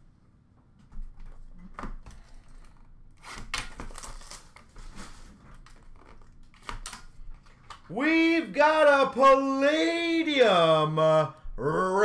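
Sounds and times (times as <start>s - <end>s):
rustling scrape: 4.1s - 6.1s.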